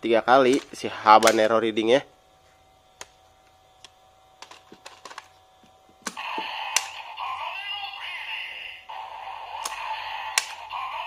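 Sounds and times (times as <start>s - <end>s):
toy electronic sound effect: 6.1s - 11.0s.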